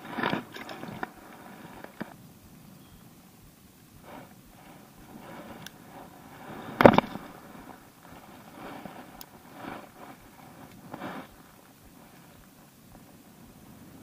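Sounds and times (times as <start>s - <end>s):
soft rustles: 0.0s - 2.7s, 4.0s - 14.0s
handling noise: 4.0s - 13.6s.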